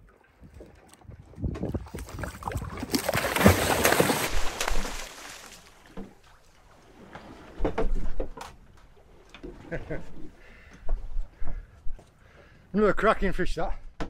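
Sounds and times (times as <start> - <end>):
water splashing and sloshing: 0.0 - 12.4.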